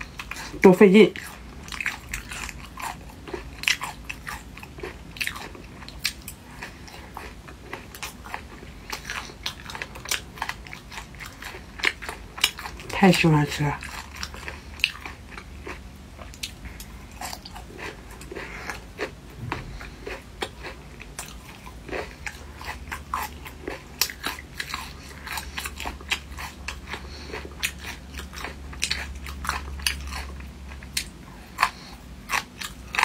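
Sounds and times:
person chewing food: 0.0s - 33.0s
low hum: 5.0s - 33.0s.

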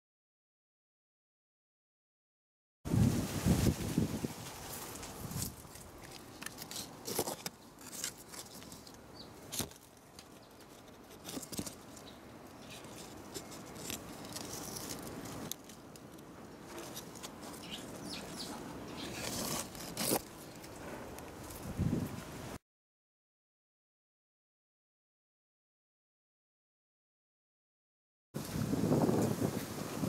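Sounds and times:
leaves and twigs rustling: 2.9s - 22.6s
sharp crackles and knocks: 3.5s - 22.2s.

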